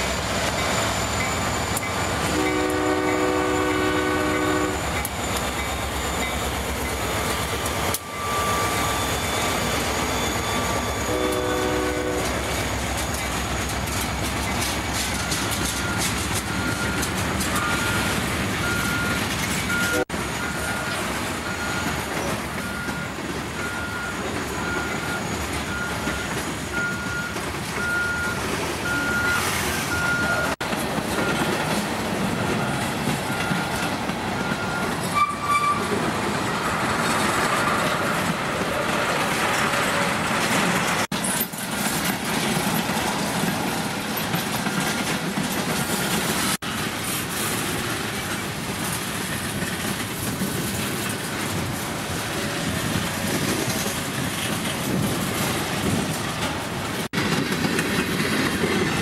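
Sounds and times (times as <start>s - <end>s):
freight train rumble and clatter: 0.0s - 59.0s
locomotive horn blast: 2.2s - 4.9s, 11.0s - 12.5s, 19.7s - 20.1s.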